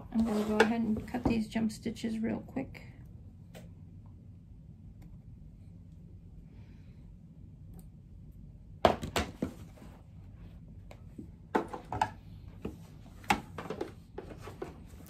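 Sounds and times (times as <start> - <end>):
low hum: 1.8 - 8.8.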